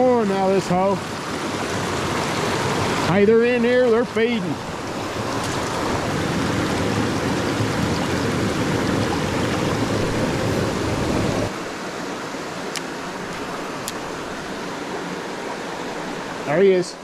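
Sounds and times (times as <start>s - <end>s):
creek water rushing over rocks: 0.0s - 17.0s.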